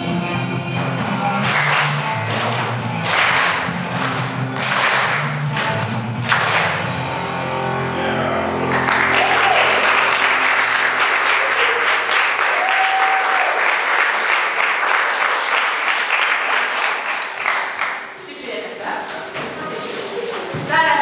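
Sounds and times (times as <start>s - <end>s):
song ending: 0.0s - 13.4s
audience applauding: 1.4s - 5.4s, 6.2s - 6.8s, 8.6s - 18.2s.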